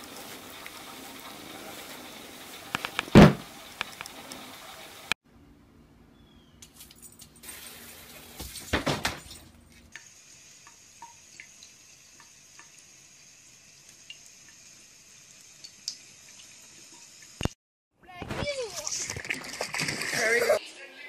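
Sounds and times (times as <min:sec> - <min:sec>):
loud knocks: 0:03.1 - 0:03.5.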